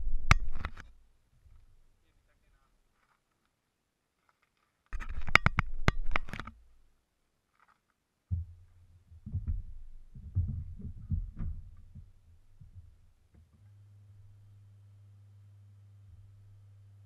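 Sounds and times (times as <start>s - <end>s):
camera handling clicks: 5.0s - 6.6s
soft thumps: 8.3s - 13.6s.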